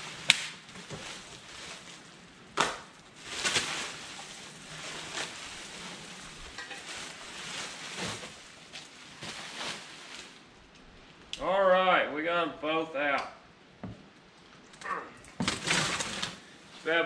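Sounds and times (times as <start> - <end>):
plastic bag crinkling: 0.6 - 2.3, 2.9 - 10.4, 15.4 - 16.5.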